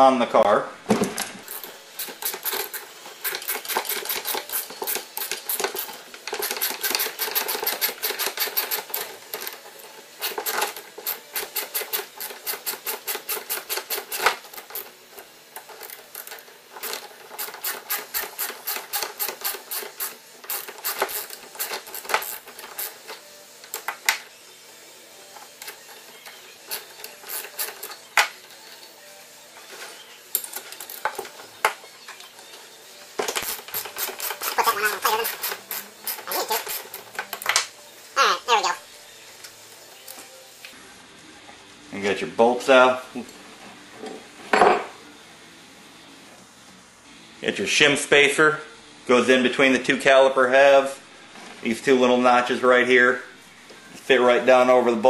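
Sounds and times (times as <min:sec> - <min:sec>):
wrenches clicking on bolts: 0:16.2 - 0:23.0.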